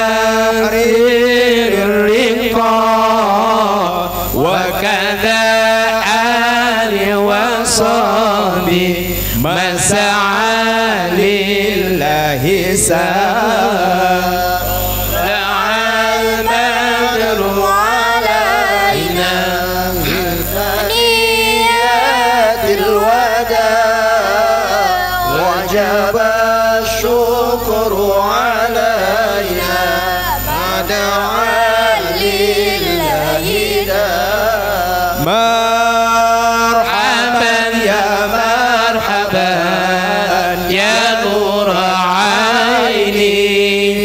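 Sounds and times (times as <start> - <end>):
men singing devotional song: 0.0 - 44.0.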